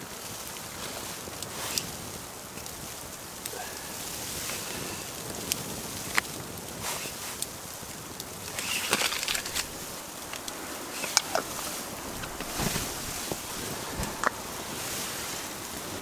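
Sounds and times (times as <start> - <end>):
campfire crackling and popping: 0.0 - 16.0
fire hiss: 0.0 - 16.0
rustling: 5.5 - 16.0.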